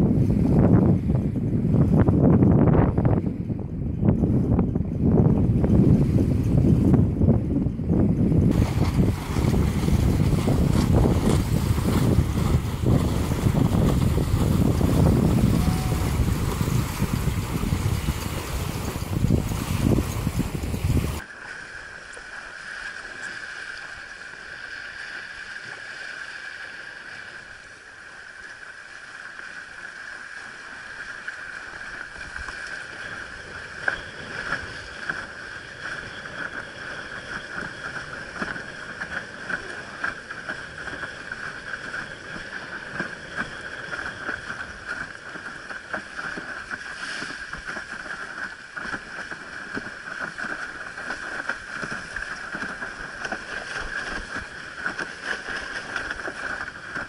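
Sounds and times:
water slapping against board hull: 8.4s - 21.2s, 30.7s - 57.0s.

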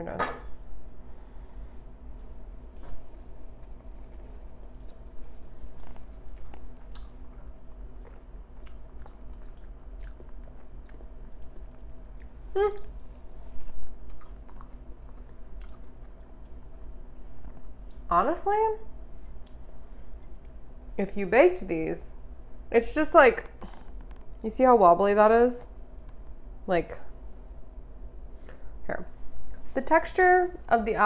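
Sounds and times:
person chewing crunchy pastry: 2.8s - 18.1s, 19.2s - 20.8s.

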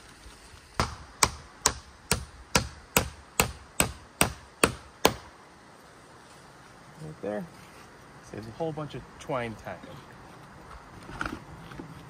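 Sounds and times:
hammer driving nail into wood: 0.8s - 5.3s.

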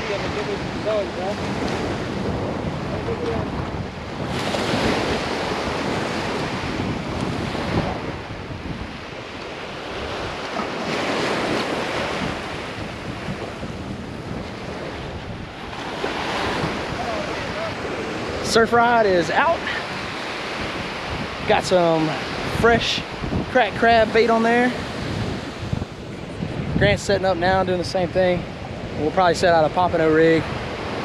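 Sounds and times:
wind buffeting microphone: 0.0s - 31.0s
small surf breaking: 4.2s - 8.3s, 8.9s - 22.5s.

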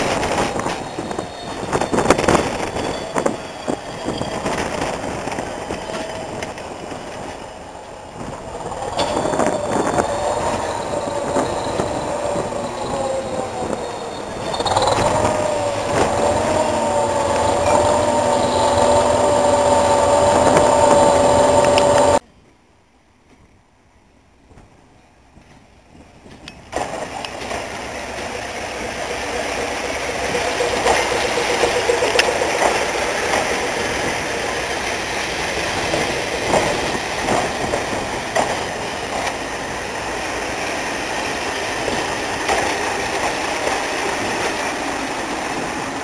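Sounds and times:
high wavering whine: 0.0s - 22.2s, 28.6s - 40.4s
train wheels knocking over rail joints: 25.4s - 46.0s.

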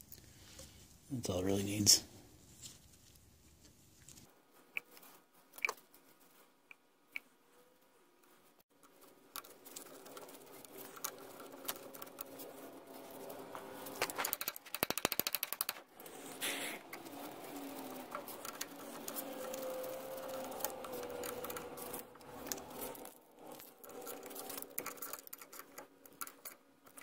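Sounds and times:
metal scraping on plastic: 8.8s - 27.0s
rapid clicks: 8.8s - 27.0s.

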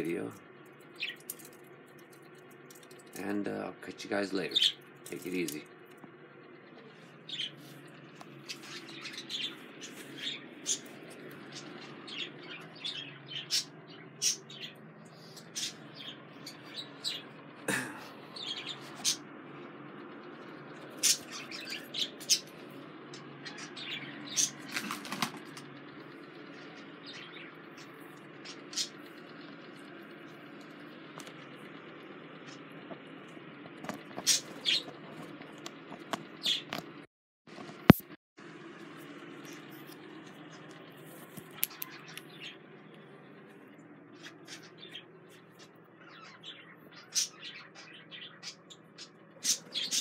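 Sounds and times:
low room hum: 0.0s - 50.0s
budgerigars chirping: 11.5s - 17.3s, 21.0s - 22.6s, 44.2s - 50.0s.

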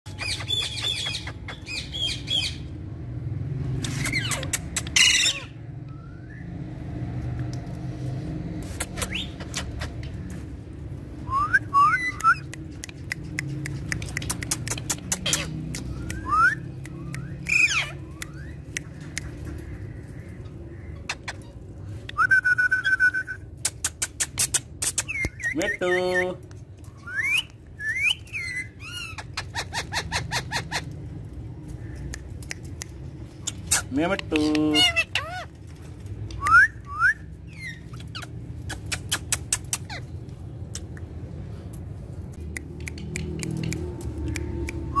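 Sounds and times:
parakeet whistling upward notes: 11.2s - 12.5s
sharp clicks: 12.2s - 19.8s, 41.7s - 44.9s.

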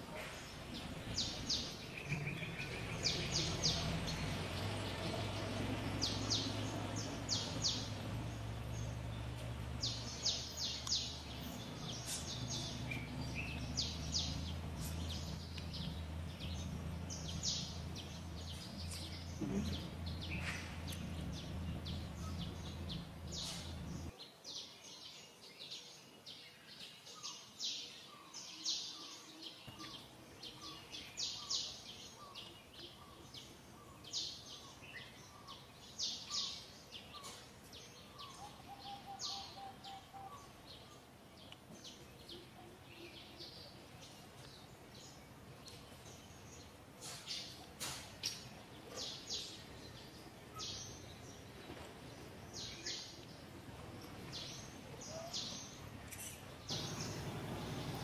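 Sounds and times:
birds chirping: 0.1s - 58.0s
low background rumble: 0.4s - 24.1s.

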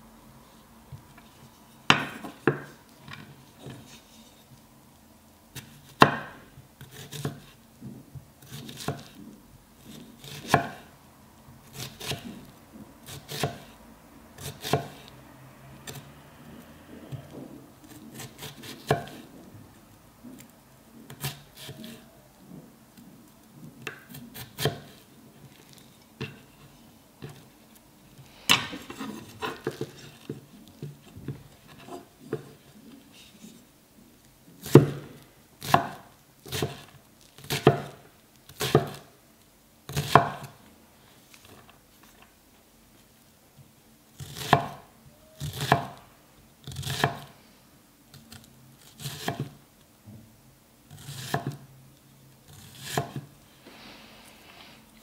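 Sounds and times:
knife slicing onion on wooden board: 5.5s - 7.6s, 8.4s - 9.2s, 9.8s - 10.9s, 11.6s - 13.8s, 14.4s - 15.1s, 17.1s - 19.3s, 21.1s - 22.2s, 23.8s - 26.5s, 28.5s - 32.7s, 34.6s - 39.1s, 39.9s - 40.6s, 44.2s - 46.0s, 46.6s - 47.4s, 48.2s - 49.6s, 50.9s - 51.7s, 52.5s - 53.3s.

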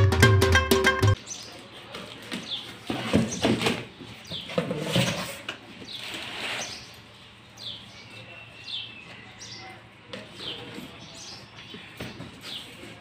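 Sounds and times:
plastic and cardboard rustling: 1.5s - 7.3s.

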